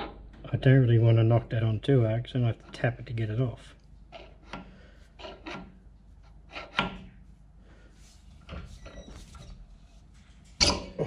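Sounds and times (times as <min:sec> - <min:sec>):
steel scraping on steel: 0:05.2 - 0:05.7.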